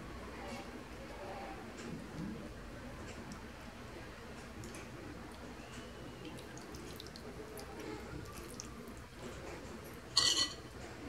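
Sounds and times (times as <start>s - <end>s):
wet fish squishing: 4.6s - 9.2s.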